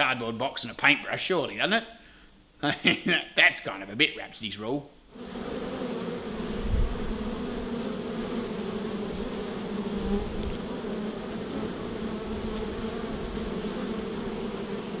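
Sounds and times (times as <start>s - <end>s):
bees buzzing: 5.1s - 15.0s.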